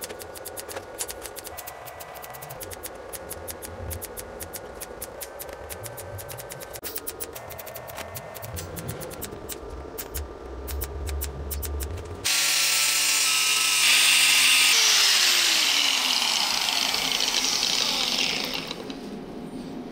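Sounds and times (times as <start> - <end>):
welder crackling with sharp clicks: 0.0 - 12.1
grinding disc rasping: 11.8 - 19.0.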